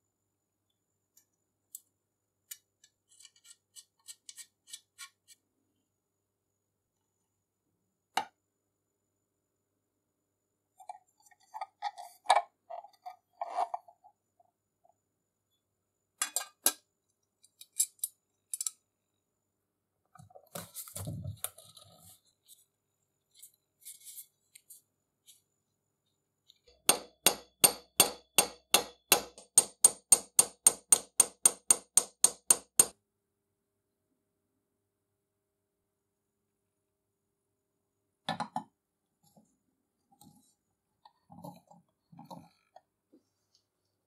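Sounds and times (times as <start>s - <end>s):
small hammer tapping metal: 26.8s - 33.0s.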